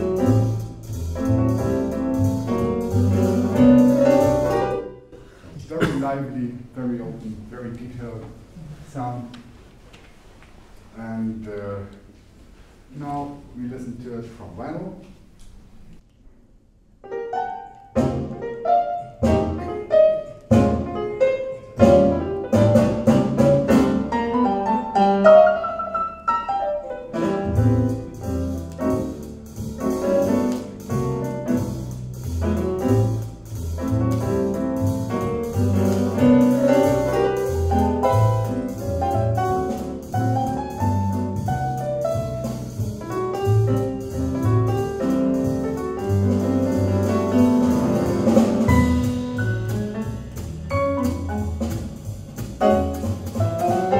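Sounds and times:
walking double bass: 0.0 - 5.8, 17.8 - 53.9
piano chords: 0.0 - 6.0, 17.0 - 53.9.

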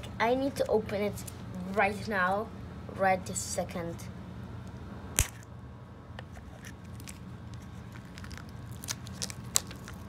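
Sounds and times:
plastic wrap crinkling: 6.5 - 10.0.

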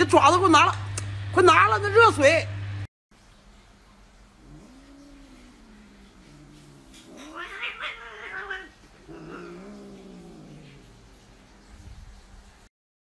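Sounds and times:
cat yowling: 4.4 - 11.1.

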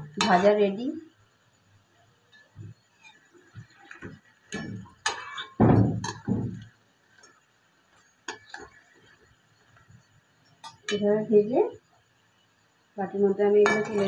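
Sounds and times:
metal spoon tapping on pan: 4.0 - 6.7, 13.6 - 14.0.

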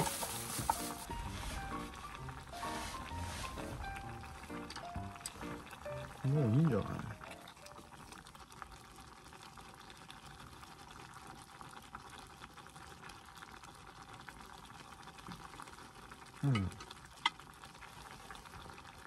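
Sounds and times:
utensil stirring in pan: 0.0 - 4.6
sauce simmering and sizzling: 0.0 - 19.0
person speaking: 6.1 - 7.4.

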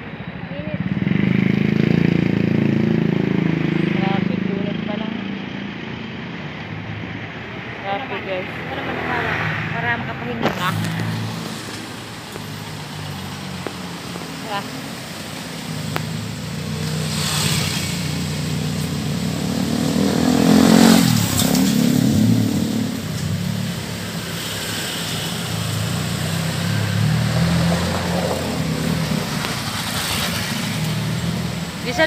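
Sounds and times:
vehicle passing by: 7.6 - 14.7, 15.7 - 32.0.

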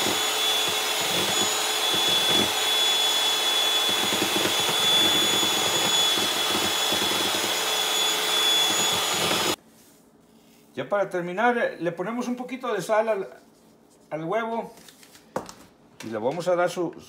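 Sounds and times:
electric hand mixer whipping: 0.0 - 9.6.

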